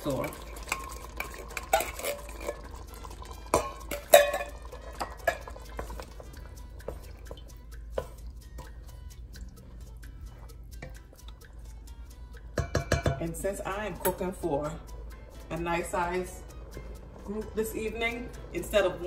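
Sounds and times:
metal spoon scraping tin can: 0:00.0 - 0:06.4
wooden spoon stirring: 0:00.0 - 0:11.8.

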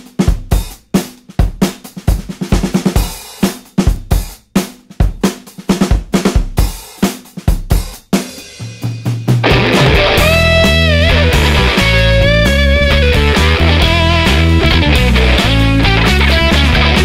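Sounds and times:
drum kit beat: 0:00.0 - 0:17.0
held low bass note: 0:09.5 - 0:16.9.

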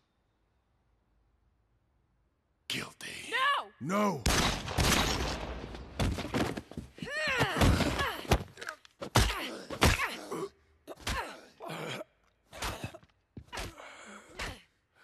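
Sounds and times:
strained grunts: 0:07.8 - 0:14.6.

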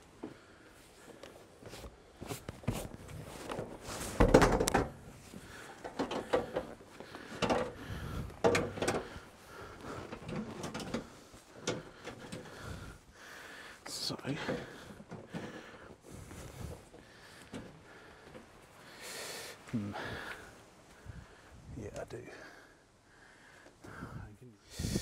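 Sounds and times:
seat clunking and scraping: 0:01.7 - 0:09.3, 0:09.9 - 0:13.0.

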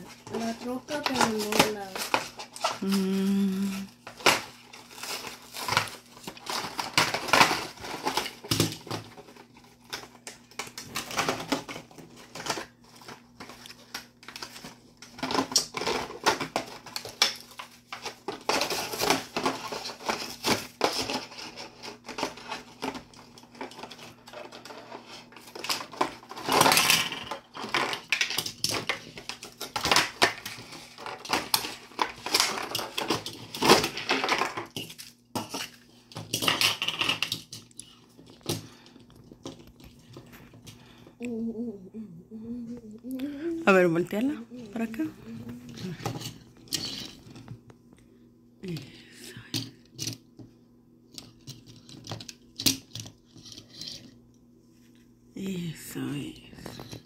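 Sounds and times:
plastic shell crinkling: 0:00.0 - 0:41.0.

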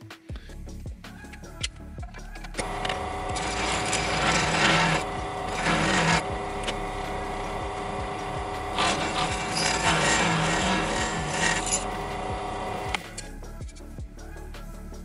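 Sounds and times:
drill press cutting metal: 0:02.6 - 0:13.3.

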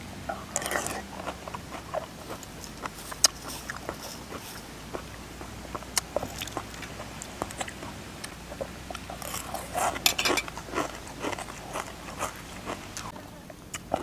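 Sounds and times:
chewing and crunching food: 0:00.3 - 0:14.0
metal spoon clinking on bowl: 0:10.0 - 0:10.5.

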